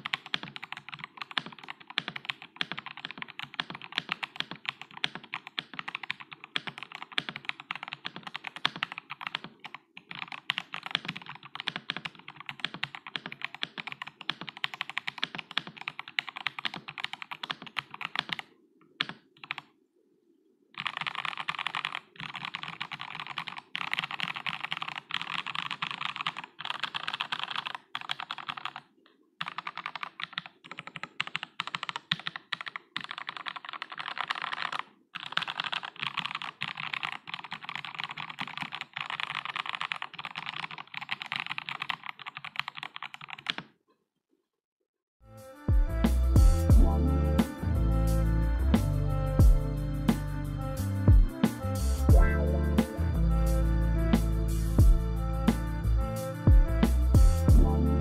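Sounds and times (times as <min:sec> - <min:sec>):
typing on mechanical keyboard: 0:00.0 - 0:19.7, 0:20.8 - 0:43.8.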